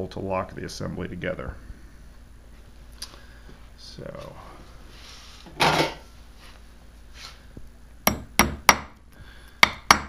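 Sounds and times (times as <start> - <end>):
hammer tapping metal pin: 8.1 - 8.9, 9.6 - 10.0.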